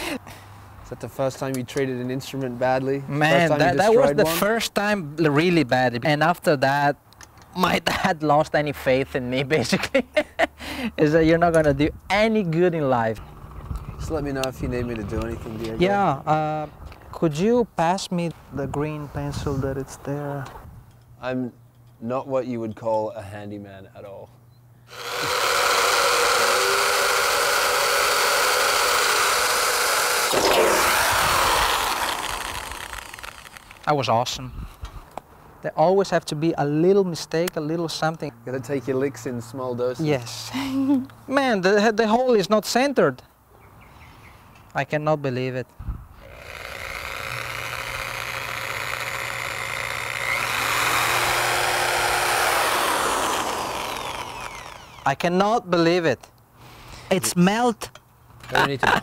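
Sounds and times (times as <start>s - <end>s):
electric drill grinding metal: 24.9s - 33.8s, 46.2s - 55.2s.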